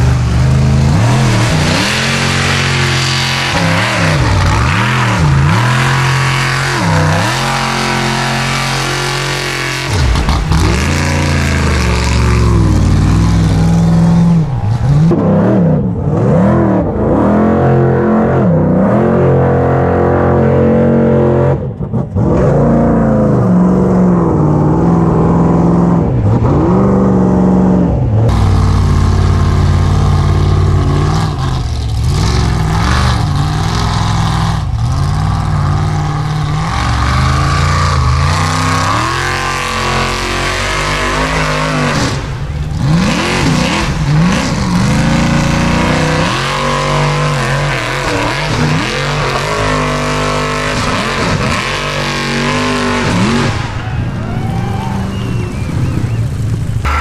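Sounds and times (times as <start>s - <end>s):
buggy engine revving hard: 0.0s - 57.0s.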